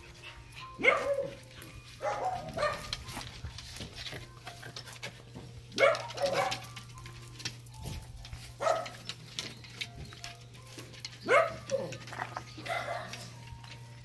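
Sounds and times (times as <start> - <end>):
dogs barking: 0.0 - 3.5, 5.7 - 6.9, 8.5 - 9.3, 11.1 - 13.7.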